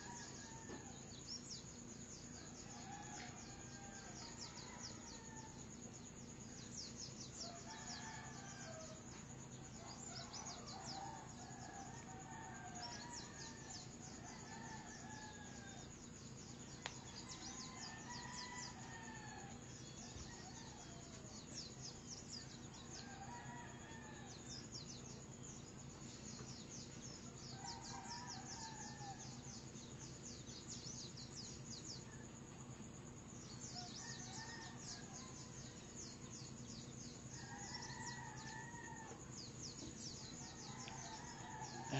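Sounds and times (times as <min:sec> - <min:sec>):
roosters crowing: 0:37.4 - 0:39.2.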